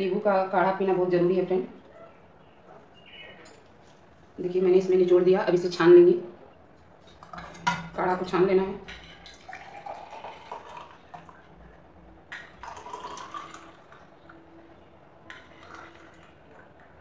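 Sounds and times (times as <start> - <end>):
liquid trickling into a glass: 9.0 - 11.6, 12.3 - 14.4, 15.2 - 17.0.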